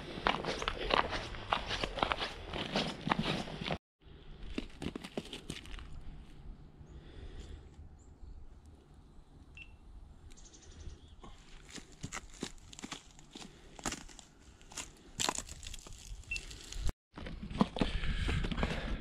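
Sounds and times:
leaves and snow crunching: 11.3 - 17.0.

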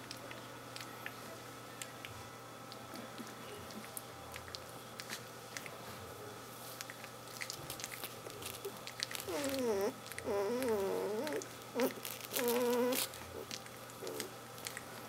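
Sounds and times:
puppy whining: 8.7 - 14.8.

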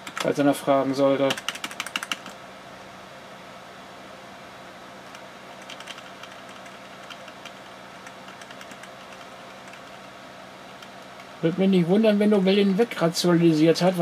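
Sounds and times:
computer keyboard clicks: 0.0 - 0.3, 1.2 - 2.4, 5.1 - 10.0
steady machine hum: 0.0 - 14.0.

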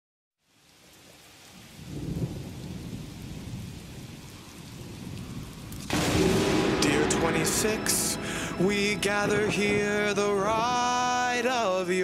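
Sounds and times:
steady rain: 0.4 - 12.0
thunder rumbling: 1.8 - 11.4.

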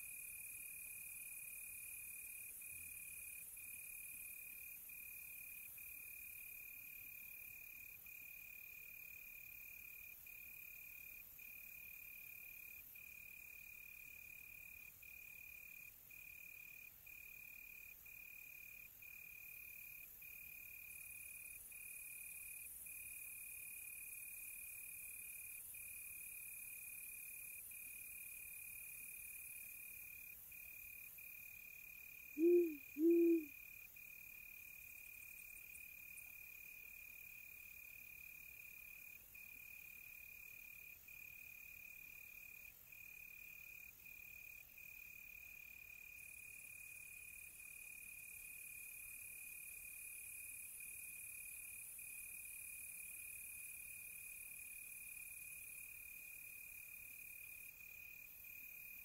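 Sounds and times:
crickets trilling: 32.4 - 33.5
owl hooting: 32.4 - 33.5.

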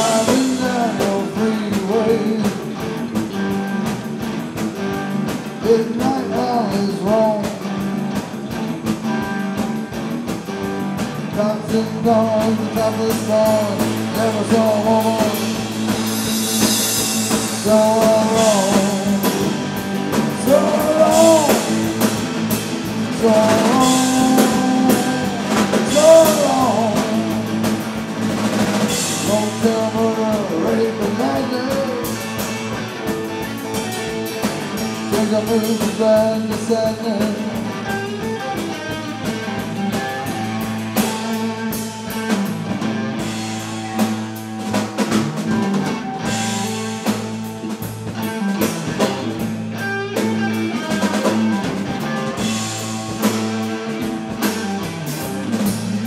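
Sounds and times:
bass guitar: 0.0 - 56.0
drum kit beat: 0.0 - 56.0
electric guitar: 0.0 - 56.0.

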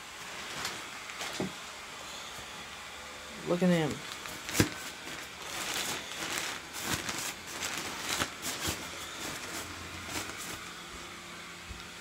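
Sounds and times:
blower fan hum: 0.0 - 12.0
rustling nylon fabric: 4.0 - 11.1.

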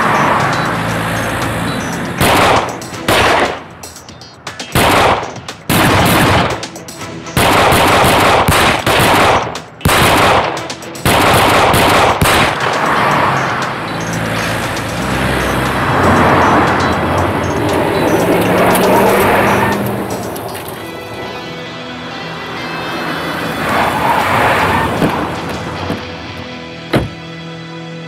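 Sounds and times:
car driving up: 0.0 - 4.4, 12.2 - 27.5
automatic gunfire bursts: 2.2 - 3.6, 4.7 - 6.6, 7.4 - 12.8.

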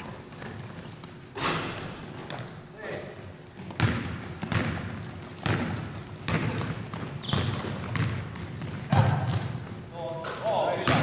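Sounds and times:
shoe squeaks: 0.8 - 1.6, 5.2 - 6.0, 7.1 - 8.0, 9.9 - 11.0
basketball bouncing on hardwood: 3.6 - 9.7.

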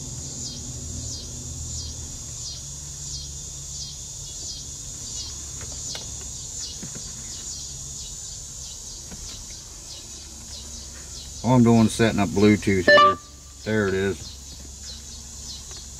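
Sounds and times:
high descending chirping call: 12.8 - 13.3.

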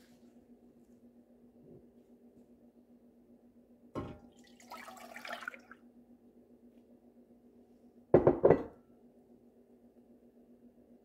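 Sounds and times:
milk pouring into saucepan: 4.0 - 5.8.

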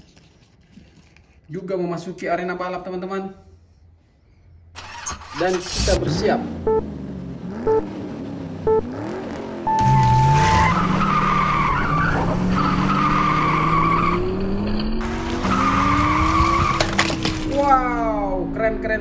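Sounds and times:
tires screeching: 4.8 - 18.0
race car engines revving: 5.6 - 17.6
countdown beeps: 6.7 - 6.9, 7.7 - 7.9, 8.7 - 8.9, 9.7 - 10.8.

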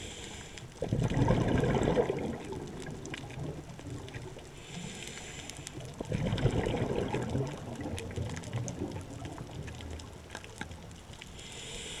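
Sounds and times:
underwater bubbles gurgling: 0.0 - 11.9
faint clicks: 2.4 - 6.6, 7.2 - 12.0.

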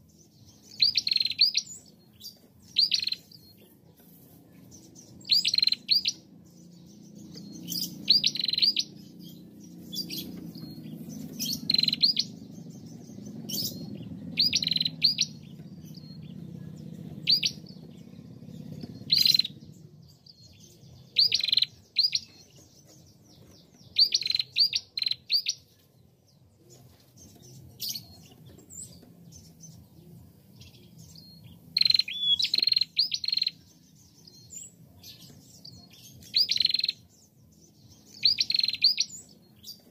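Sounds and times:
bird sharp high chirps: 0.0 - 25.9, 26.7 - 39.9
low background rumble: 4.8 - 24.0.

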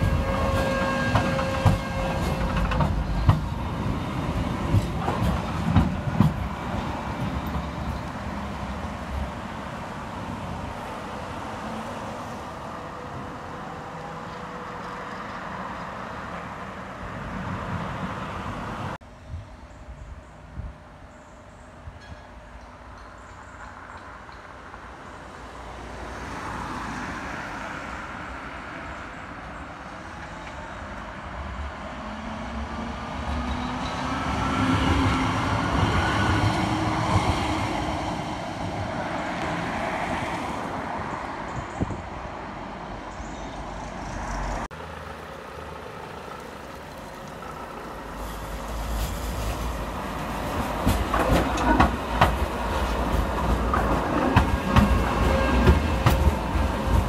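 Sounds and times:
wheels clattering over rail joints: 0.0 - 8.3, 46.0 - 57.0
tram motor whine and wheel rumble: 0.0 - 25.8, 28.1 - 57.0.

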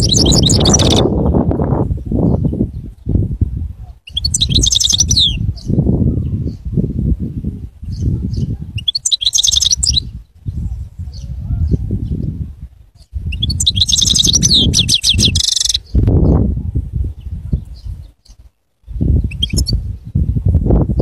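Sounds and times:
goldfinch twittering song: 0.0 - 1.1, 4.0 - 5.8, 7.9 - 11.3, 13.0 - 16.4, 17.6 - 19.8.

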